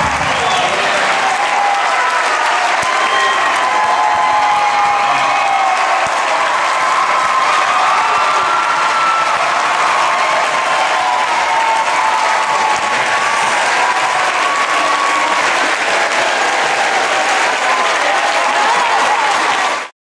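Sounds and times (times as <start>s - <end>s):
crowd applauding: 0.0s - 19.9s.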